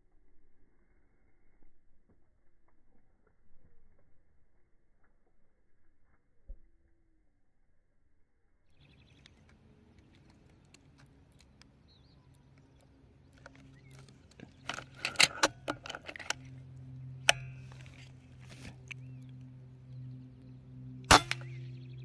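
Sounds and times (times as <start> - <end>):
low steady hum: 0.0 - 22.0
rifle handling clicks and rattles: 12.5 - 19.4
sharp click: 21.0 - 21.6.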